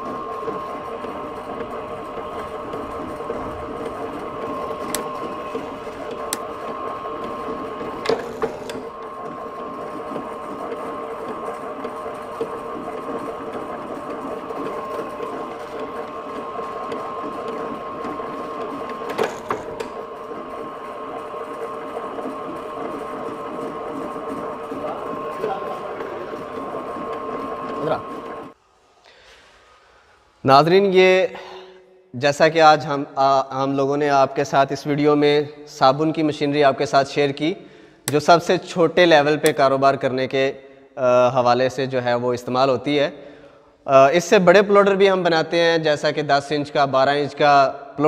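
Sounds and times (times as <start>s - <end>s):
stamping press motor hum: 0.0s - 28.6s, 38.0s - 38.5s.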